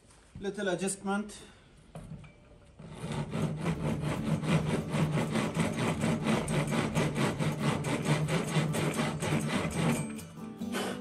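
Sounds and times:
file rasping in wood: 2.8s - 11.0s.

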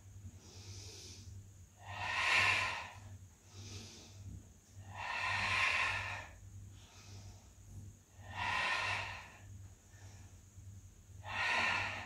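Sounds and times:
woman exhaling forcefully: 1.8s - 3.0s, 4.9s - 6.4s, 8.2s - 9.4s, 11.2s - 12.0s.

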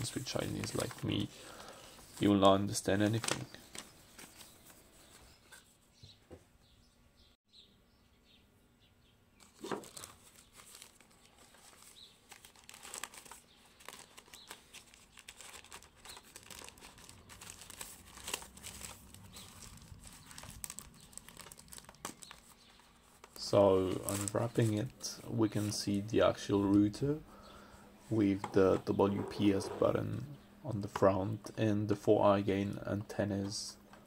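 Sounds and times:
plastic film crinkling: 9.4s - 25.0s.

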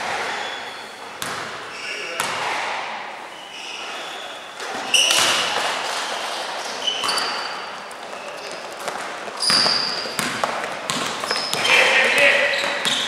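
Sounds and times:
sneakers squeaking on court: 0.0s - 2.6s, 3.3s - 13.0s
basketball bouncing: 1.1s - 1.6s, 2.2s - 2.6s, 5.1s - 6.0s, 6.8s - 13.0s.

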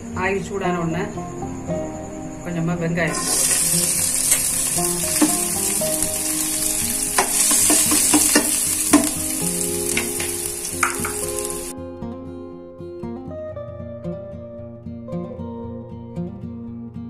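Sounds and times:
onions sizzling in oil: 3.1s - 11.7s
spoon clinking and scraping pan: 3.1s - 11.7s.

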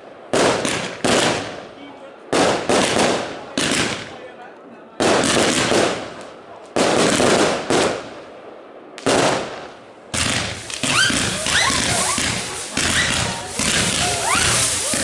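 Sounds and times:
fireworks barrage of bangs and crackle: 0.0s - 15.0s
firework burst: 9.0s - 15.0s.

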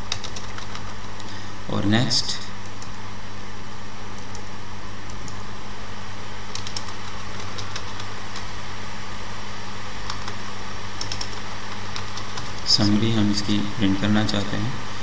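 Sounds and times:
keyboard keystrokes: 0.0s - 1.2s, 6.5s - 8.4s, 10.0s - 10.4s, 11.0s - 12.6s
low electrical hum with hiss: 0.0s - 15.0s.

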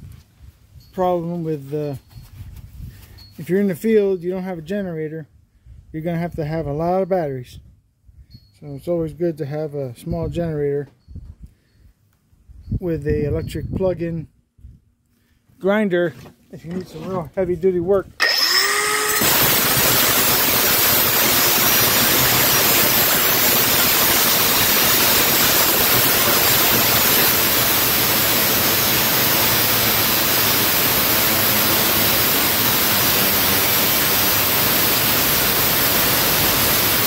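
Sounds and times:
angle grinder cutting steel: 18.2s - 37.0s.

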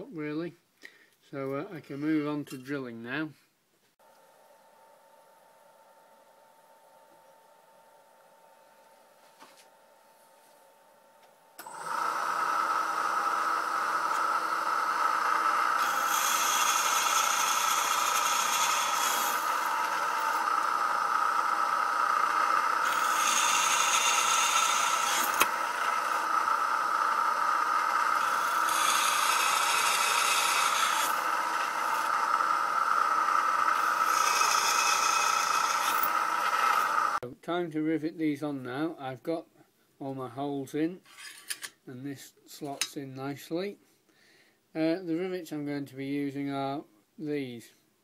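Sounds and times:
drill press motor whine: 11.2s - 37.2s
drill bit cutting steel: 11.6s - 37.2s.

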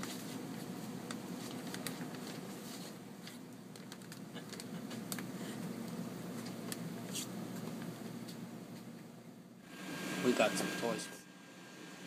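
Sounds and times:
low background hum: 0.0s - 12.0s
plastic shrink-wrap crinkling: 1.1s - 3.0s, 3.7s - 5.3s.

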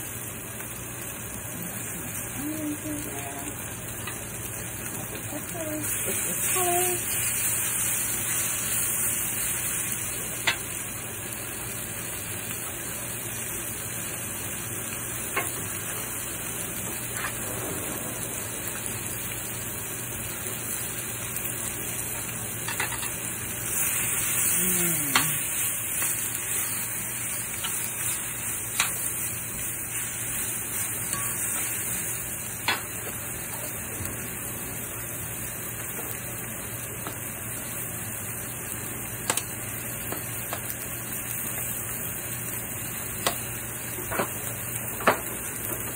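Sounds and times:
vegetables sizzling in oil: 0.0s - 45.9s
metal tongs clicking on pan: 10.4s - 10.6s, 22.7s - 23.2s, 28.8s - 29.1s, 31.0s - 31.7s, 39.3s - 39.5s.

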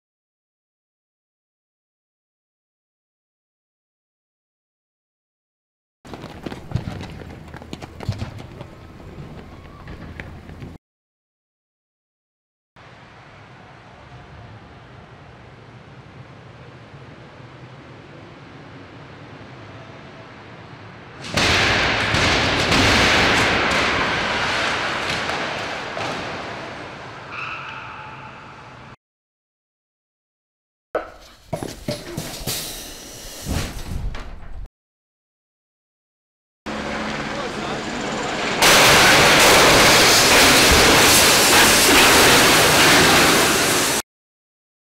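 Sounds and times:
cars crashing onto road: 38.6s - 44.0s.

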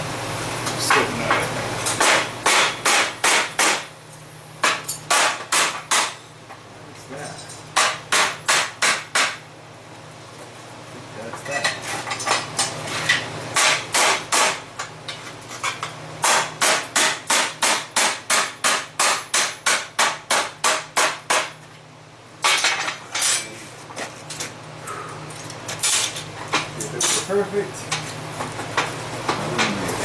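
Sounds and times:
steady low hum: 0.0s - 30.0s
hammer striking hot steel bar: 1.9s - 3.9s, 4.6s - 6.2s, 7.8s - 9.4s, 13.6s - 14.6s, 16.2s - 21.6s.

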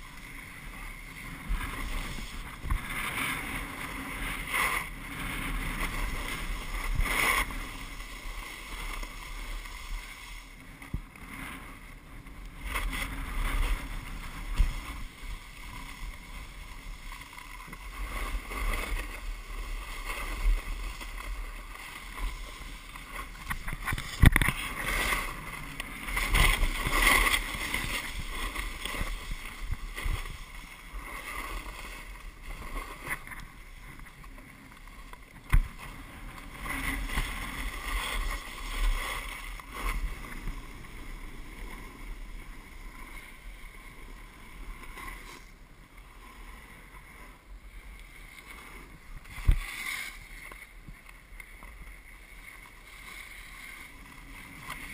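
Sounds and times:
edges carving packed snow: 12.5s - 33.4s
wind on microphone: 17.7s - 34.2s, 48.4s - 51.0s.

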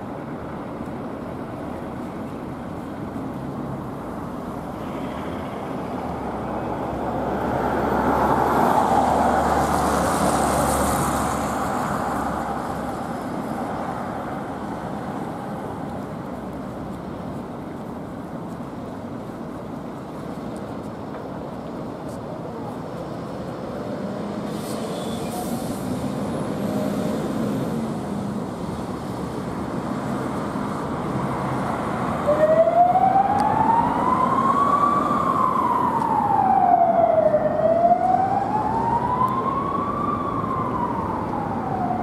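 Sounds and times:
fire truck engine: 0.0s - 42.0s
road noise: 0.0s - 42.0s
siren wailing: 32.2s - 42.0s.

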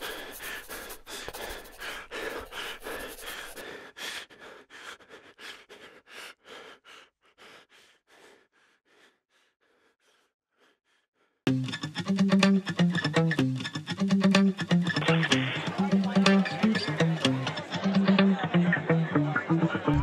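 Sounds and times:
short breathy bursts: 0.0s - 11.4s.

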